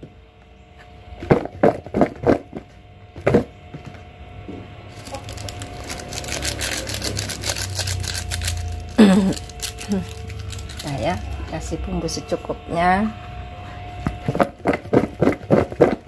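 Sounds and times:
foil sachet crinkling: 4.9s - 11.5s.

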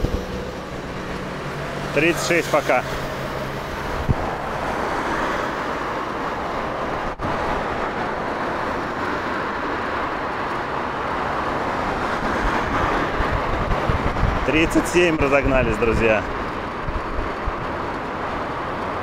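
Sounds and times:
scooter road noise: 0.0s - 19.0s
wind rushing: 2.8s - 10.2s, 10.8s - 15.8s.

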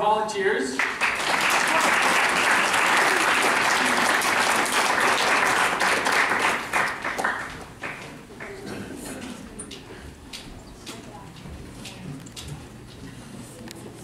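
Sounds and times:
audience applauding: 0.8s - 8.7s.

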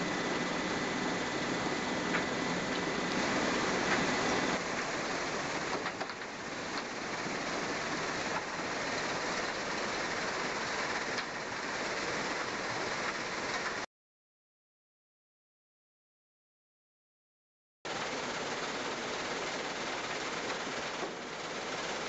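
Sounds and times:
conveyor machinery running: 0.0s - 13.9s, 17.9s - 22.0s.

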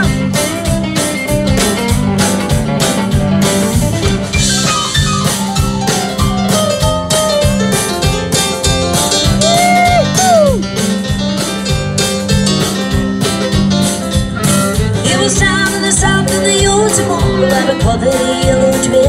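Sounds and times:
drums keeping a steady beat: 0.0s - 19.0s
electric guitar: 0.0s - 19.0s.

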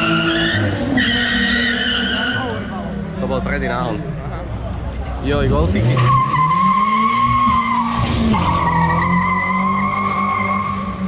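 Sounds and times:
car engine at high revs: 5.2s - 11.0s.

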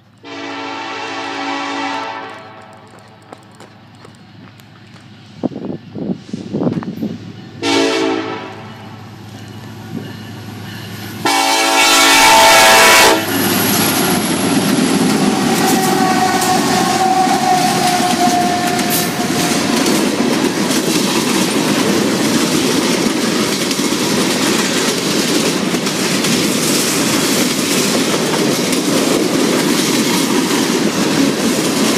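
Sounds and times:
locomotive horn blasts: 0.2s - 3.1s, 7.6s - 8.8s, 11.2s - 13.4s, 15.2s - 19.9s
train wheels rumbling and clattering: 1.1s - 31.9s.

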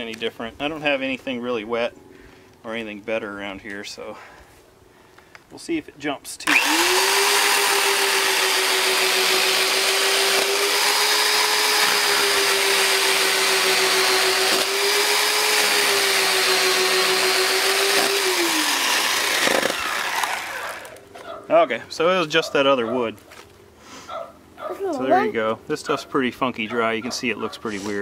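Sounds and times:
electric chainsaw cutting log: 6.4s - 21.1s.

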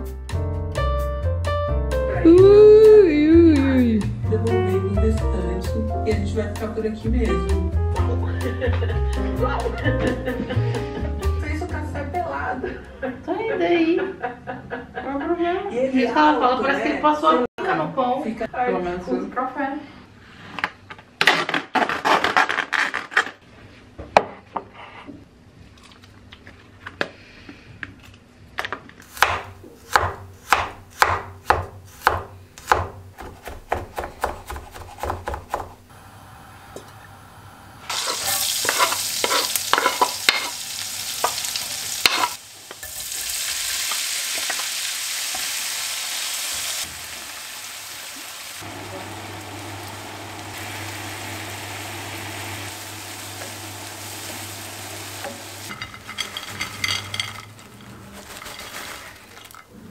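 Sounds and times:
knife chopping on wooden board: 29.2s - 35.8s
shrimp sizzling in frying pan: 37.8s - 59.5s
plastic crackling: 57.4s - 59.7s.

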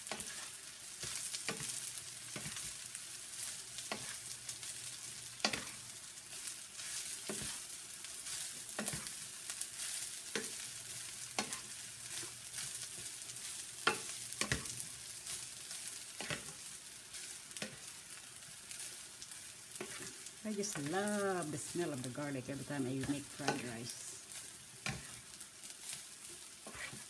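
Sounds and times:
rice sizzling in pan: 0.0s - 27.0s
plastic spatula scraping pan: 26.6s - 27.0s.

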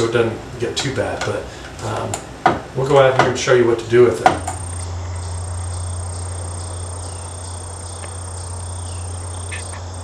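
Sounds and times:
insects trilling: 4.2s - 10.0s
low hum: 4.4s - 10.0s.

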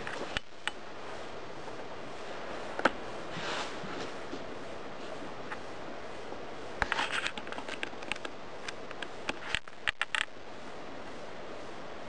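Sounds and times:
steady hiss: 0.0s - 12.0s
sharp clicks and scrapes: 6.8s - 10.4s.

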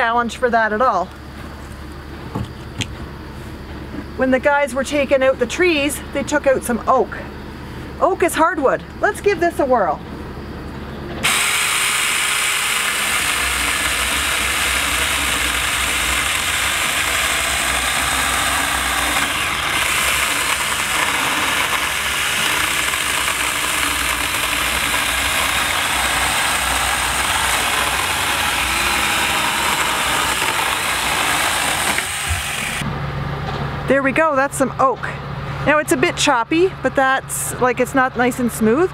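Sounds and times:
chainsaw cutting log: 11.2s - 32.9s.

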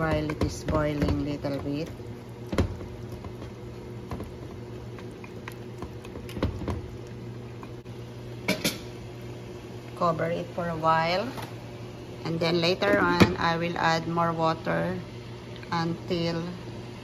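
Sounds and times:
wooden spoon stirring in pot: 0.0s - 7.9s
faint simmering: 0.0s - 12.3s
steady low hum: 0.0s - 17.0s.

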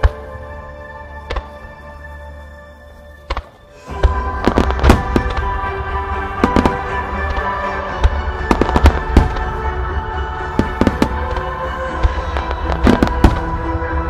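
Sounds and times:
fireworks bursting: 3.3s - 9.8s, 10.5s - 14.0s
music over loudspeakers: 3.8s - 14.0s.

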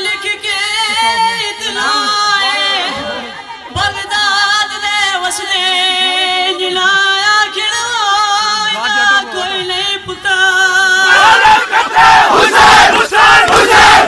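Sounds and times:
crowd shouting: 10.9s - 14.0s.

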